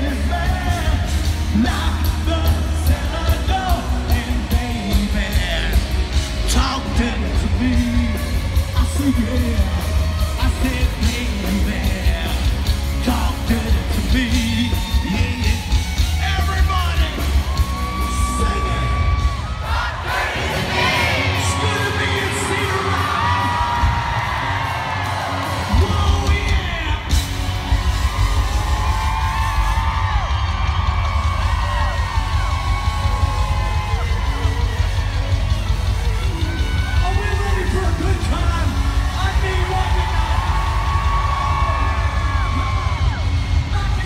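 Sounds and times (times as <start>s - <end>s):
lead singer singing: 0.0s - 15.8s
live rock band playing: 0.0s - 19.7s, 20.5s - 44.0s
crowd shouting: 14.4s - 44.0s.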